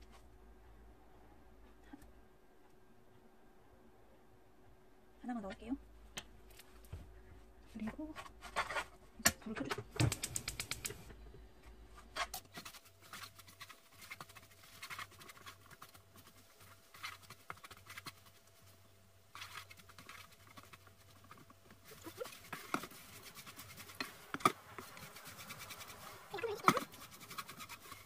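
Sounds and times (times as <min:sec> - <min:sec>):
spatula scraping dry fish in pan: 0:19.4 - 0:28.0.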